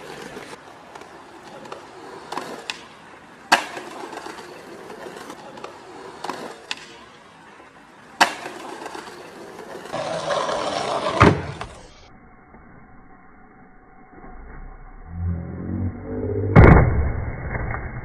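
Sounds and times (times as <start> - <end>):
skateboard clacks: 0.0 - 7.3, 8.1 - 11.8
skateboard wheels rolling on concrete: 0.0 - 12.1.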